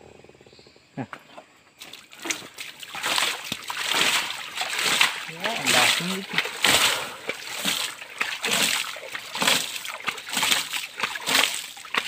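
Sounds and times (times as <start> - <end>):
hands splashing water in stream: 1.8 - 12.0.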